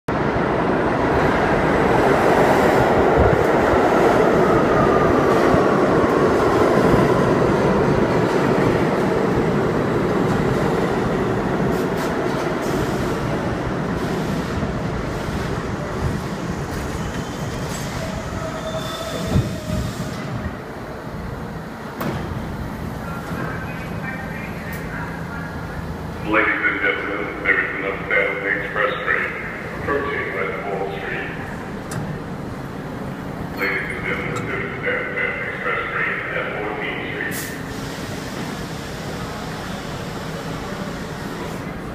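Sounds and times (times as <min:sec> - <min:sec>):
subway train rumbling: 0:00.0 - 0:41.9
train brakes squealing: 0:16.9 - 0:20.2
train stopping thump: 0:21.9 - 0:22.5.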